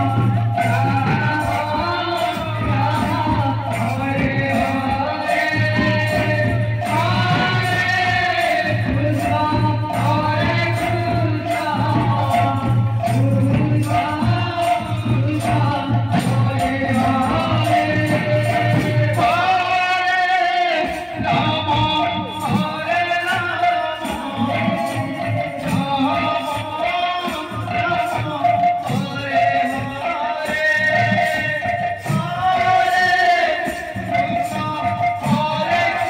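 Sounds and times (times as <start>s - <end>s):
small hand cymbals jingling: 0.0s - 19.7s
barrel drums: 0.0s - 19.8s
man singing into a microphone: 0.0s - 36.0s.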